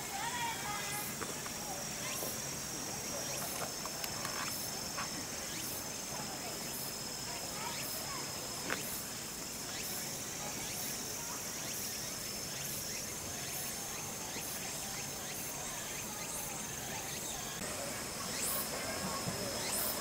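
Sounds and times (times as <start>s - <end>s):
high pulsing insect chirp: 0.0s - 20.0s
insects buzzing in chorus: 0.0s - 20.0s.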